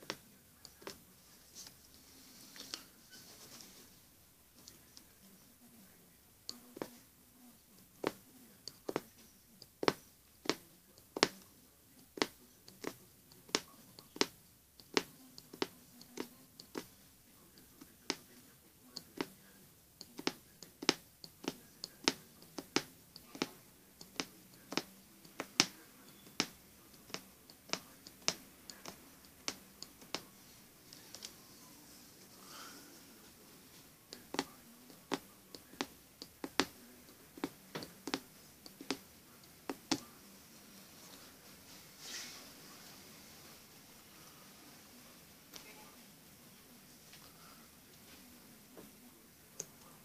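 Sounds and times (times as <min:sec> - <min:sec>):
needle punching through fabric: 0:07.9 - 0:11.4, 0:12.1 - 0:17.0, 0:20.0 - 0:30.3, 0:34.1 - 0:39.0.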